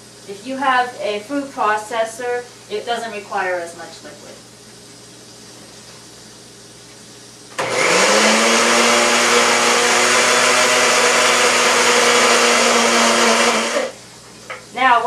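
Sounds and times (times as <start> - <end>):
blender motor running: 7.6 - 14.0.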